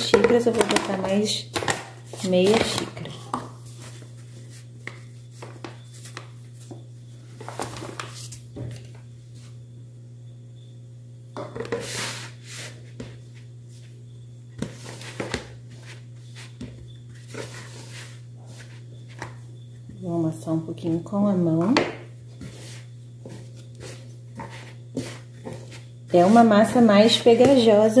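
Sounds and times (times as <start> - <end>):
steady low hum: 0.0 - 28.0
utensil scraping a mixing bowl: 14.7 - 19.4, 22.3 - 28.0.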